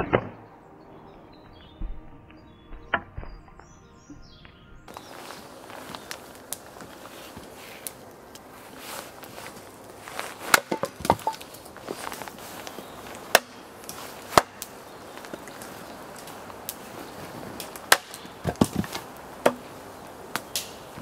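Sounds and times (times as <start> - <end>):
split wood clattering down: 9.4 - 21.0
axe chopping wood: 10.4 - 11.6, 13.3 - 13.6, 14.3 - 14.7, 17.8 - 19.7.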